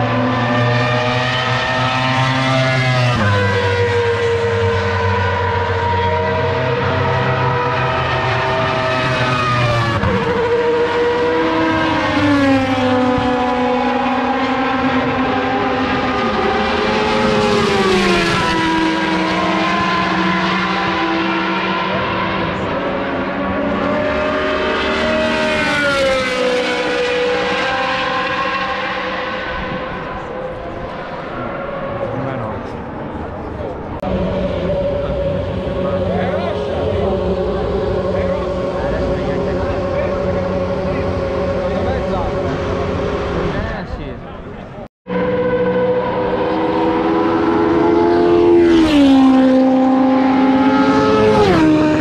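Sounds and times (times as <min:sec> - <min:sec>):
racing car engines running: 0:00.0 - 0:52.0.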